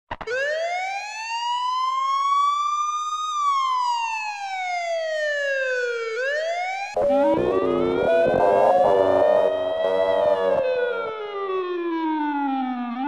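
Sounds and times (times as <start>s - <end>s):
toy siren wailing: 5.7s - 11.4s.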